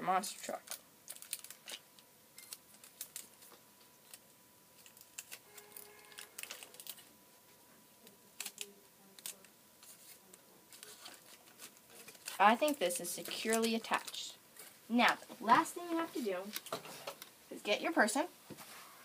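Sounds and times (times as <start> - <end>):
cardboard and tape rustling: 4.8 - 7.1, 8.3 - 14.2.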